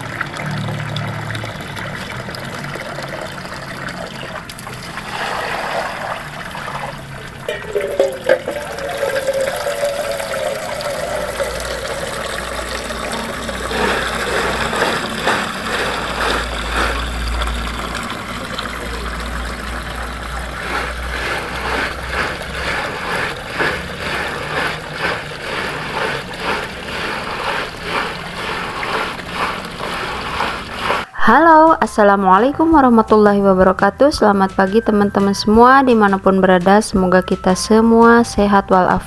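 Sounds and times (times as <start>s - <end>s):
water pouring from a pipe: 0.0s - 31.1s.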